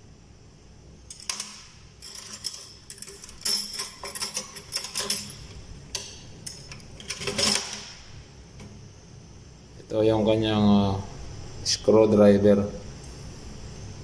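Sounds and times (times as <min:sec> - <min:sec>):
metal instruments clinking: 0:01.1 - 0:08.0.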